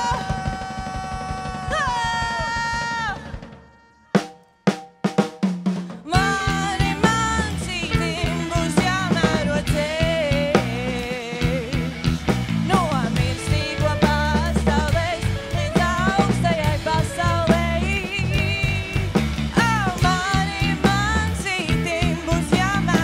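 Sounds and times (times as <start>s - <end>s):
rock band playing: 0.0s - 23.0s
drum kit hits: 4.2s - 15.2s.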